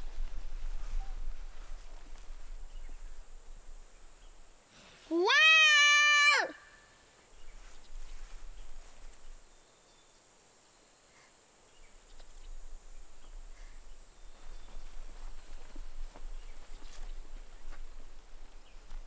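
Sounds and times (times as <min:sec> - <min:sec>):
soft rustling: 0:00.0 - 0:03.2, 0:07.3 - 0:09.5, 0:13.6 - 0:19.0
faint chirps and ticks: 0:07.2 - 0:19.0.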